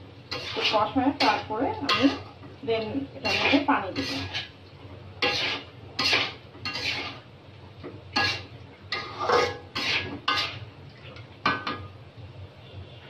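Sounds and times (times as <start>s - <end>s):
food frying: 0.0s - 12.1s
metal spatula scraping a wok: 0.3s - 4.6s, 5.2s - 7.3s, 8.1s - 10.7s.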